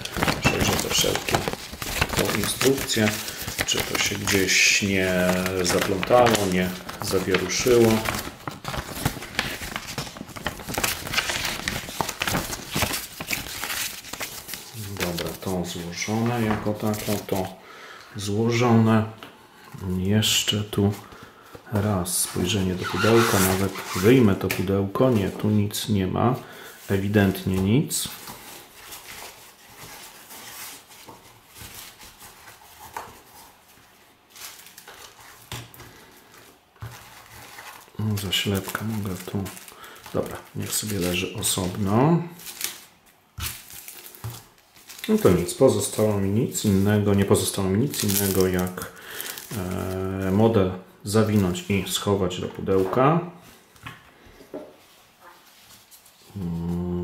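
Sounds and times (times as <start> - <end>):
packaging crinkling and rustling: 0.0 - 17.6, 26.8 - 53.7.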